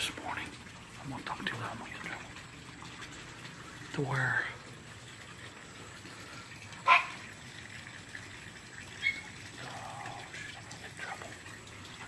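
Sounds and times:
dog barking: 6.8 - 7.2, 9.0 - 9.3.

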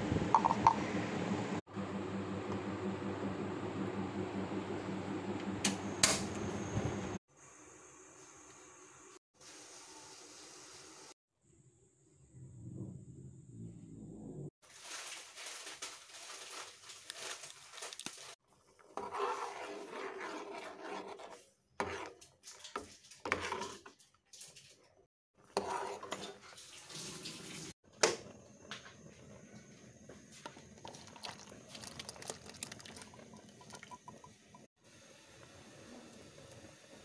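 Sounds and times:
sauce bubbling in pot: 30.6 - 37.0
sauce pouring into bowl: 30.8 - 34.3.

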